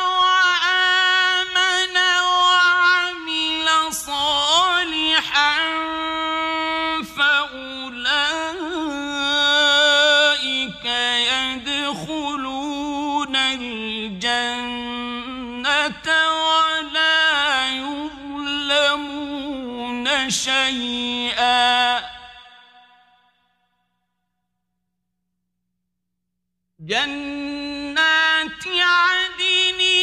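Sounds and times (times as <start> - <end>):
man reciting melodically: 0.0 - 22.9, 26.8 - 30.0.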